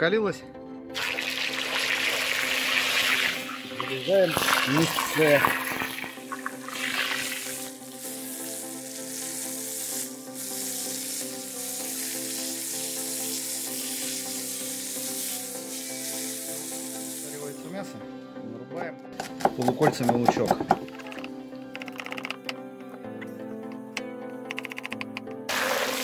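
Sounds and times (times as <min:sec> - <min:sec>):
background music with sustained chords: 0:00.0 - 0:26.0
meat sizzling in hot oil: 0:01.0 - 0:17.6, 0:25.5 - 0:26.0.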